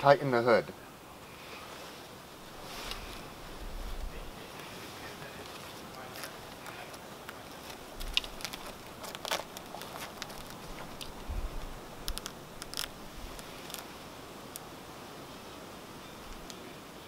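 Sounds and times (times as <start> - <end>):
fabric rustling: 1.4 - 14.1.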